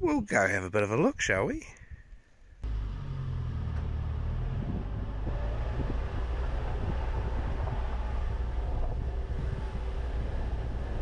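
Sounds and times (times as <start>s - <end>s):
van driving on gravel: 2.6s - 11.0s.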